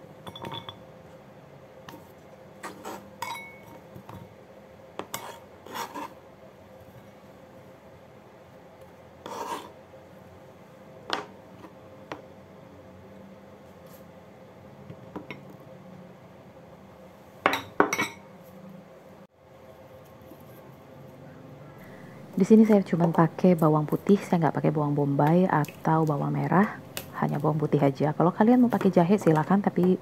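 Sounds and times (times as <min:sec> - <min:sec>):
ceramic bowl and utensils clinking: 0:00.2 - 0:00.8, 0:03.2 - 0:03.8, 0:17.5 - 0:18.3.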